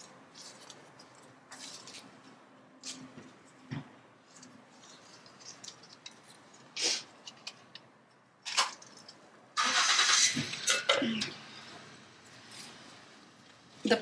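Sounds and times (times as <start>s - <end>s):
soil and plants rustling: 0.0s - 3.6s, 4.2s - 7.4s.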